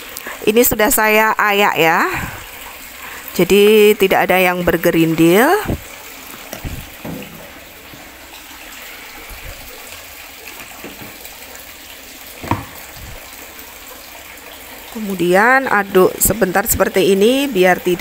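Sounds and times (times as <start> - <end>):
soft knock: 12.4 - 12.8.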